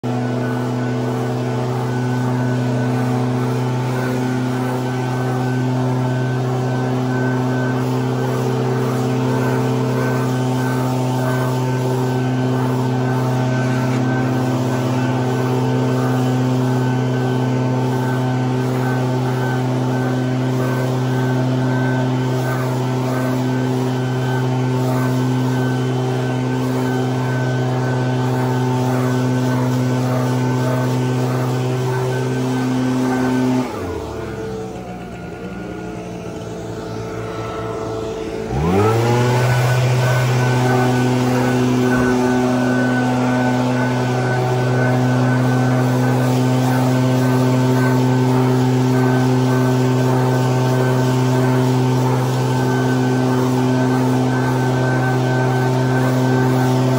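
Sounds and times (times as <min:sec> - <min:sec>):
leaf blower running: 0:00.0 - 0:56.9
leaves blowing across grass: 0:37.1 - 0:56.9.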